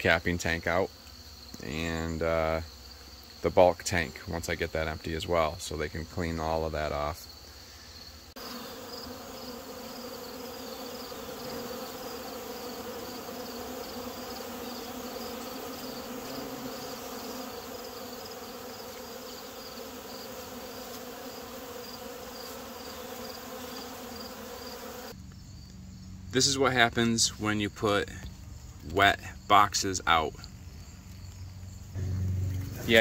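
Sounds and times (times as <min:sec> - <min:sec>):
bees buzzing: 0:07.0 - 0:25.2, 0:31.9 - 0:33.0.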